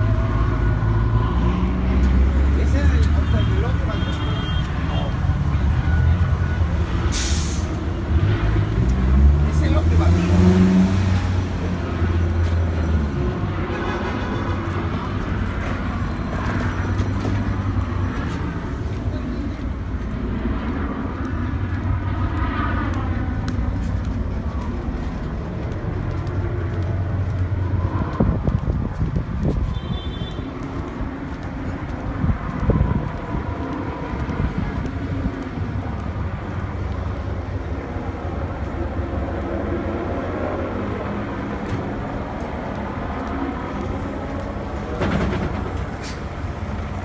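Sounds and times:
large vehicle engine rumbling: 0:00.0 - 0:47.0
street noise: 0:00.0 - 0:47.0
knocks and clatter: 0:44.8 - 0:46.0.

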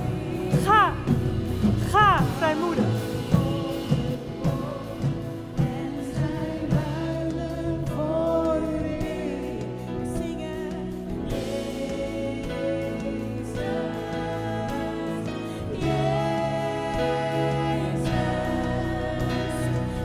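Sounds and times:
people singing worship music: 0:00.0 - 0:20.0.

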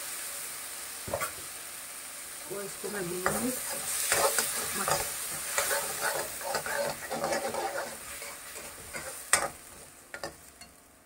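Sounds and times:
food sizzling in oil: 0:00.0 - 0:11.0
spoon scraping pan: 0:03.2 - 0:10.8.

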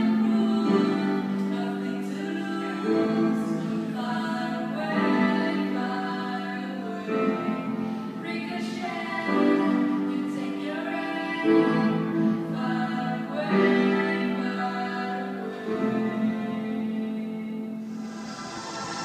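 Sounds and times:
woman singing into microphone: 0:00.0 - 0:17.9.

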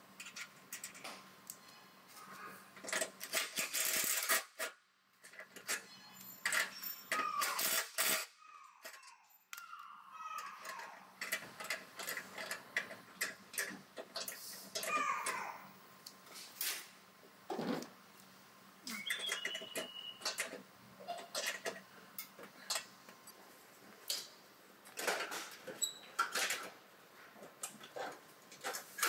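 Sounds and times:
short falling squeaks: 0:18.9 - 0:20.4.

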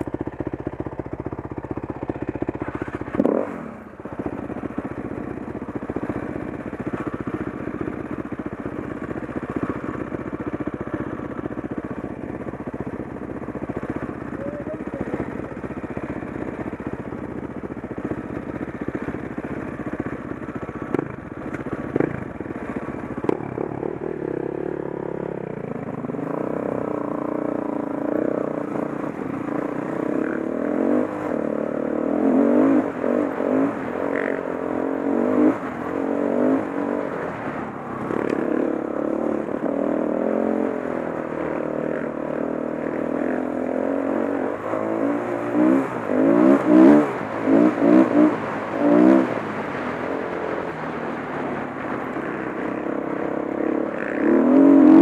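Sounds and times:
dirt bike engine revving: 0:01.6 - 0:05.1, 0:20.6 - 0:37.0, 0:38.1 - 0:49.4, 0:52.2 - 0:55.0.

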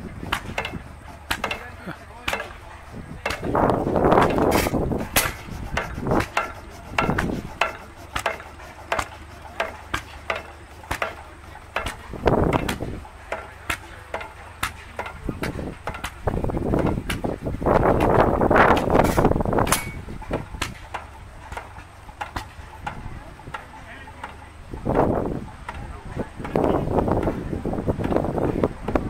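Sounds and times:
stationary engine knocking: 0:00.0 - 0:27.5.

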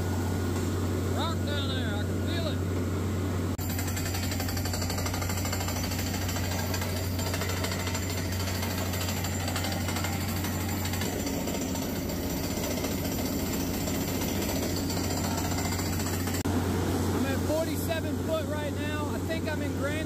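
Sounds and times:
low engine drone: 0:00.0 - 0:03.7
air hammer rapid hammering: 0:03.6 - 0:16.4.

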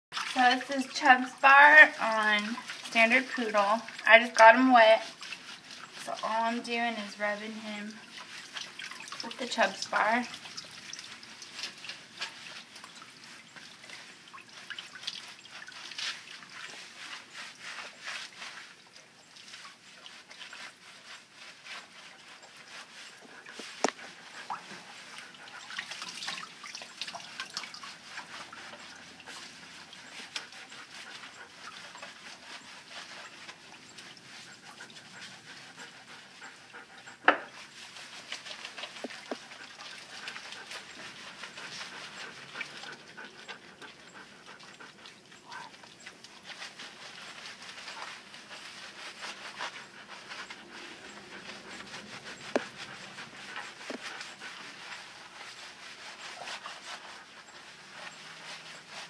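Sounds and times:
hands scrubbing wet fur: 0:00.2 - 0:59.0
dog panting: 0:19.5 - 0:59.0.

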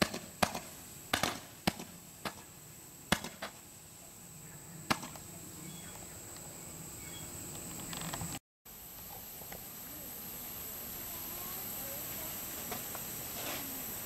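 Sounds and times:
fireworks popping: 0:00.0 - 0:03.7, 0:04.9 - 0:05.3, 0:11.3 - 0:14.0
firework crackle: 0:00.0 - 0:04.0, 0:09.0 - 0:14.0
faint hiss: 0:00.0 - 0:14.0.

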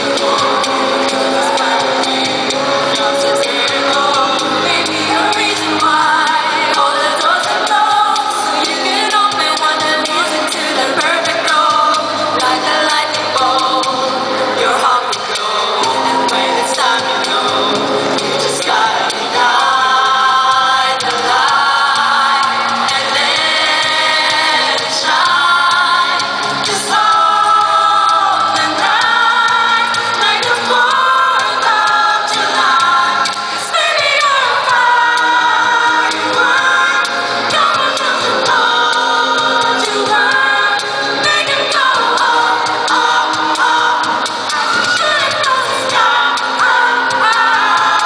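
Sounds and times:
mixed choir singing in harmony: 0:00.0 - 0:48.0.

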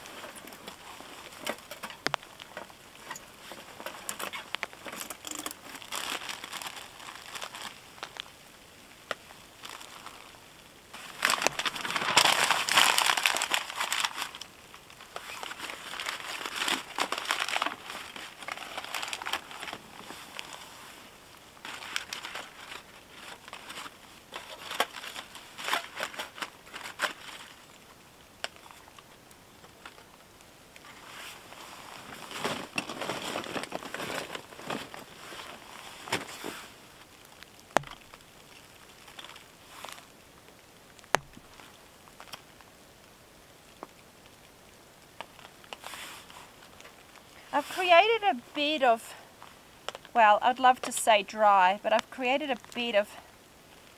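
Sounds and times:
paper crumpling and crinkling: 0:00.0 - 0:08.3, 0:09.6 - 0:10.4, 0:11.0 - 0:27.9, 0:30.8 - 0:40.2, 0:45.2 - 0:51.0.

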